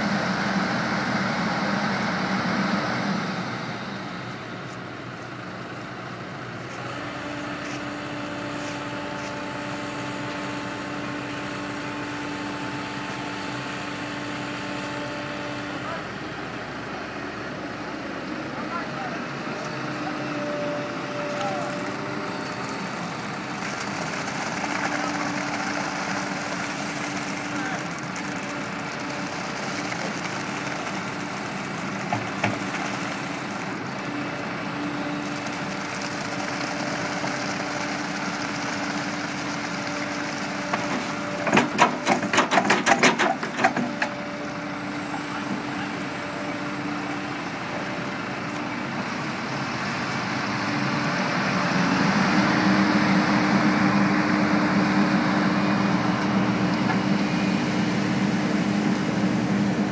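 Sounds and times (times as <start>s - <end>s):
diesel engines running: 0.0s - 59.9s
clatter of sharp knocks: 40.8s - 44.1s.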